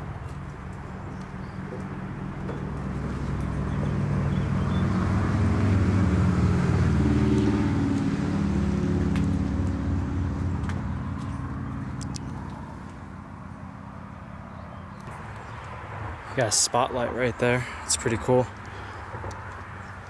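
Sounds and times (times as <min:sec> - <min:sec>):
passing engine drone: 0:01.9 - 0:14.3.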